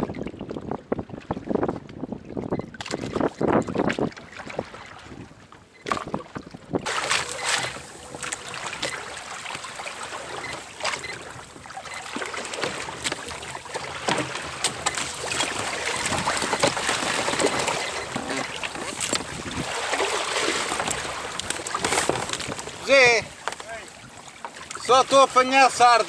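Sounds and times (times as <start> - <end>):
wind buffeting microphone: 0.0 - 9.8, 14.4 - 24.2
water splashing along a hull: 0.0 - 26.0.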